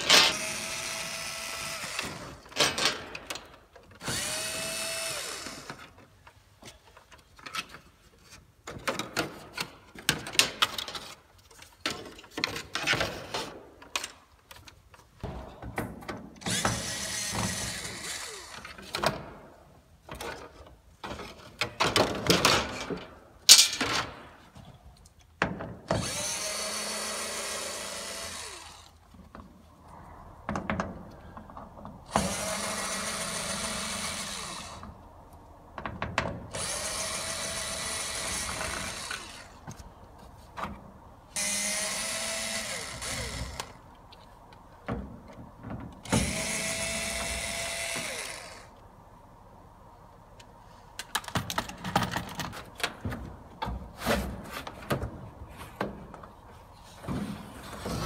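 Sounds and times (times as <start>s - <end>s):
power drill running: 4.0s - 5.7s, 16.5s - 18.6s, 26.0s - 28.9s, 32.1s - 34.8s, 41.4s - 43.8s, 46.2s - 48.7s
clicks and knocks of tools: 13.8s - 15.1s, 50.4s - 53.8s.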